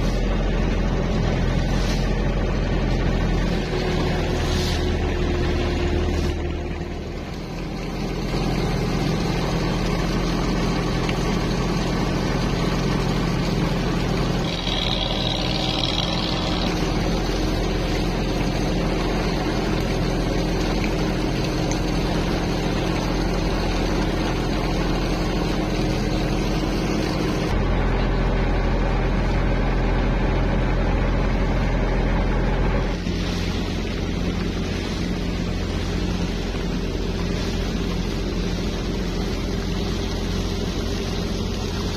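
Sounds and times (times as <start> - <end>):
boat engine running: 0.0 - 41.9
deep low rumble: 12.2 - 23.6.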